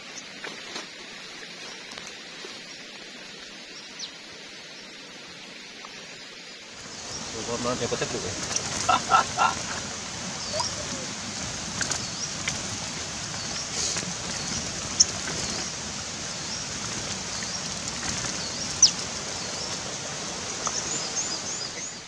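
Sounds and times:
songbirds chirping: 0.0s - 22.0s
steady hiss: 0.0s - 22.0s
birds fluttering against bars: 6.8s - 21.8s.

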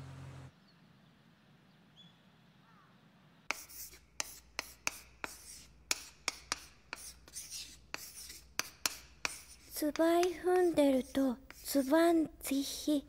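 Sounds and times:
pencil scratching on paper: 3.5s - 12.2s.

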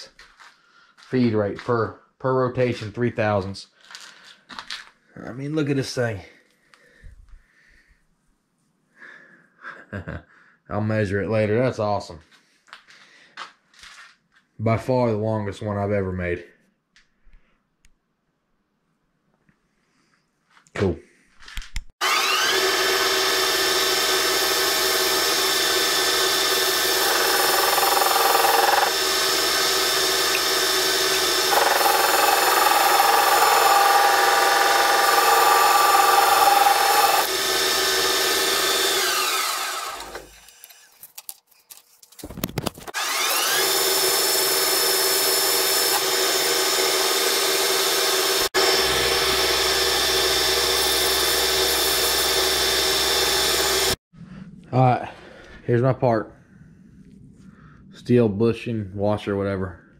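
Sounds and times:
metal lathe whine: 22.0s - 40.3s, 43.0s - 54.0s
drill boring into steel: 22.0s - 40.8s, 42.9s - 54.0s.

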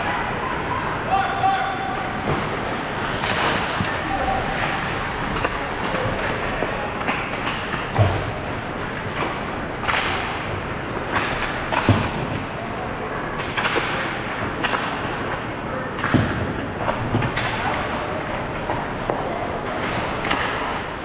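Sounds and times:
hockey sticks clattering: 2.0s - 21.0s
skates scraping on ice: 2.1s - 11.6s.

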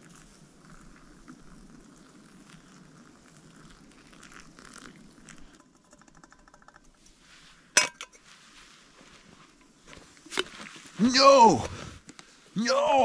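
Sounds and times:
water trickling into dripper: 0.1s - 5.4s.

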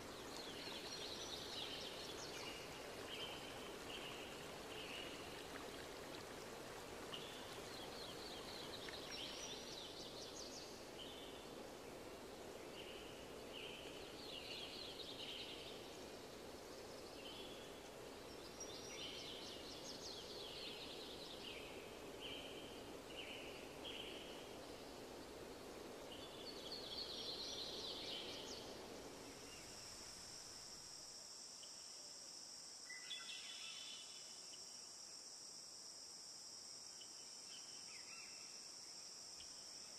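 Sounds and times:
high insect drone: 0.0s - 39.9s.

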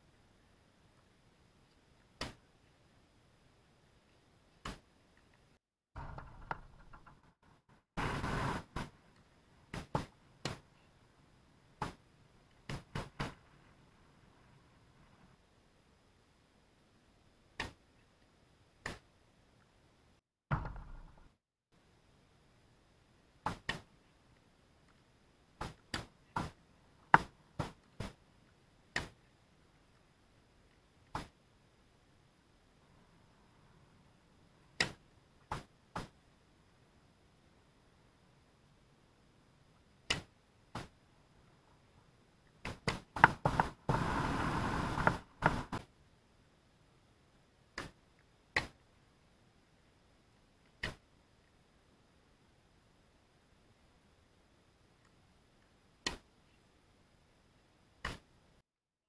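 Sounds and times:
burst of rushing noise: 8.0s - 9.0s, 43.4s - 45.8s
ball bouncing on hard court: 20.5s - 21.3s.

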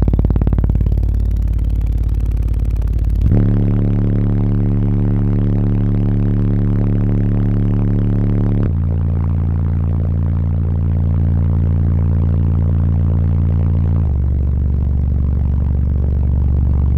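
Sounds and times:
loud low bass tone: 0.0s - 16.9s.

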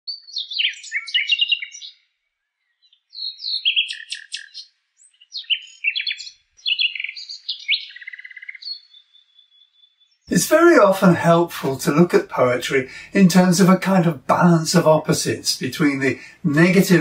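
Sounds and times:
nightingale singing: 0.1s - 10.3s.

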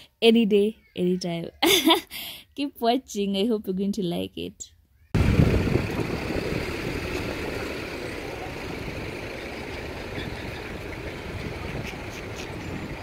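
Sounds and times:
vehicle engines idling: 5.2s - 13.0s.

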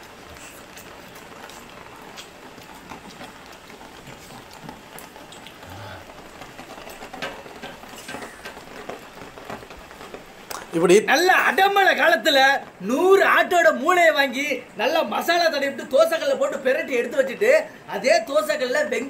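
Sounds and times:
water drips tapping: 0.0s - 12.9s
steady rain: 0.0s - 19.0s.

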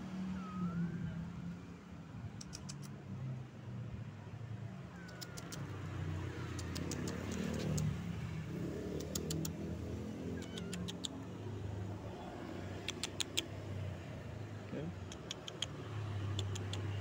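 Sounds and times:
vehicle engine rumble: 0.0s - 17.0s
short sharp high clicks: 2.4s - 2.9s.

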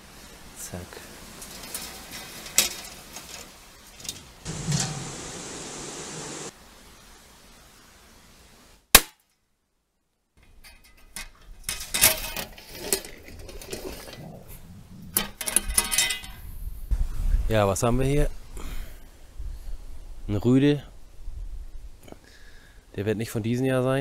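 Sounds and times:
wire cage rattling: 1.4s - 5.2s, 10.4s - 16.5s
handgun shot: 9.0s - 9.2s.

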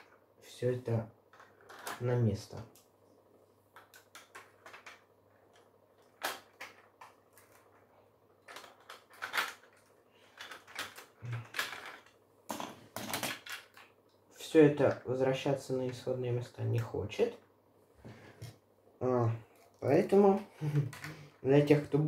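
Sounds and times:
plastic bricks clicking and clattering: 1.3s - 2.0s, 3.8s - 7.7s, 8.4s - 14.0s.

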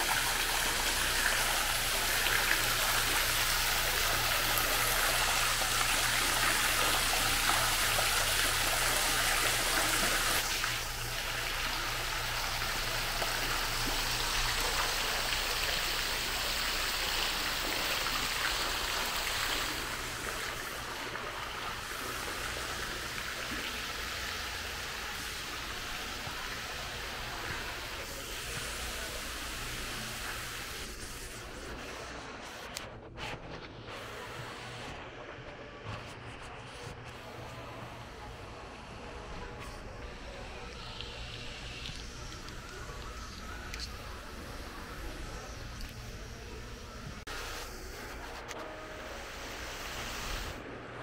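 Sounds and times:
fountain water splashing: 0.0s - 30.9s.

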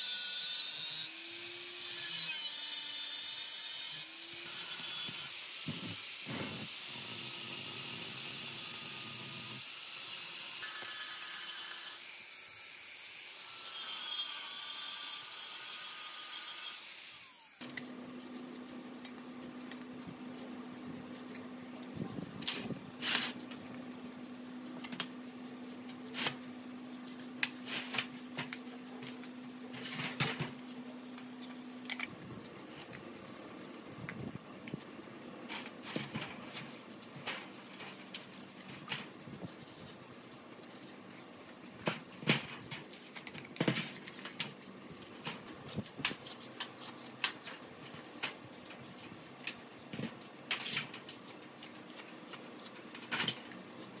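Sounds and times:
angle grinder grinding metal: 0.0s - 12.6s.

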